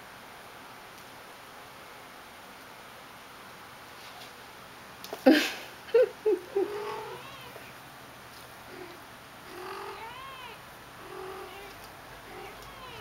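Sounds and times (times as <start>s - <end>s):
kittens mewing: 6.5s - 7.7s, 8.6s - 13.0s.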